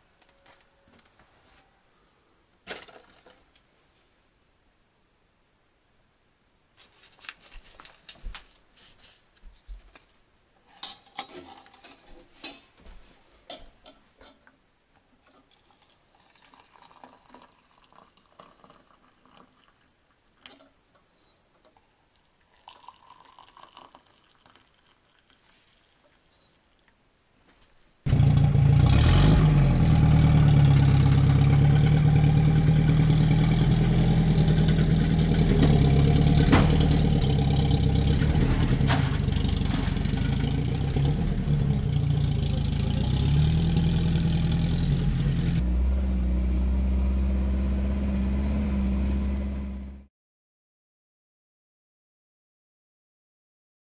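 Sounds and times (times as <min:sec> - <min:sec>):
vehicle engine running: 0:28.1 - 0:50.1.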